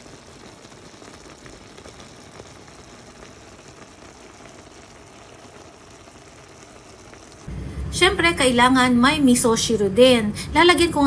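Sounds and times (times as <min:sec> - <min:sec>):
broth simmering and bubbling: 0:00.0 - 0:08.0.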